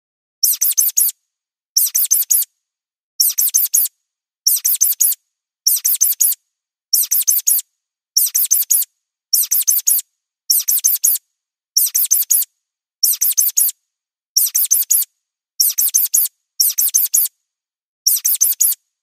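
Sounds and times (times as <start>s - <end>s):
mouse squeaks: 0.4s - 1.2s, 1.8s - 2.5s, 3.2s - 3.9s, 4.5s - 7.6s, 8.2s - 11.2s, 11.8s - 13.8s, 14.4s - 17.3s, 18.1s - 18.9s.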